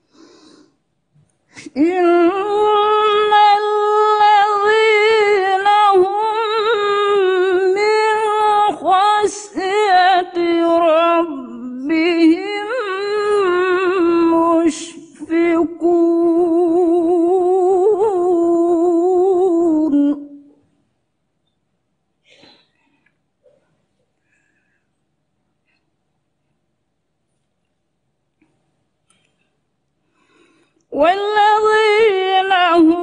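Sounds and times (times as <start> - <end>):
woman reciting melodically: 1.5 - 20.6, 30.9 - 33.0.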